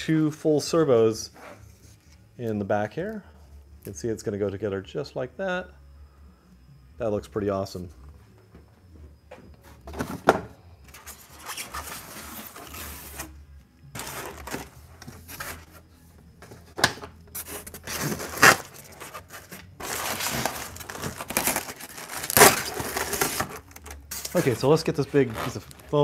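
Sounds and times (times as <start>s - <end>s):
foam packaging rubbing and scraping: 10.9s - 13.4s, 14.0s - 15.9s, 17.3s - 26.0s.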